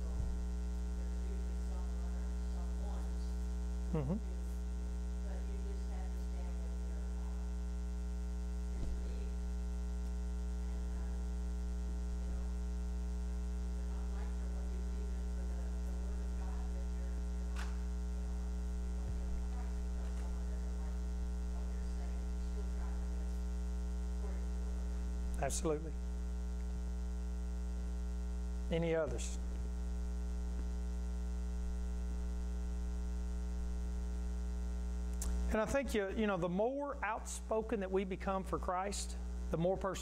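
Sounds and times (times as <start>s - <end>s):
electrical mains hum: 0.0s - 40.0s.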